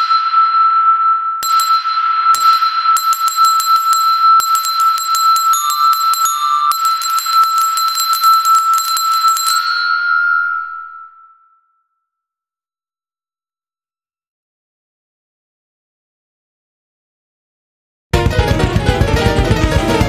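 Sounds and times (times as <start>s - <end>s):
sharp metallic tinkling strikes: 0.0s - 11.4s
steady high bell ringing: 0.0s - 11.8s.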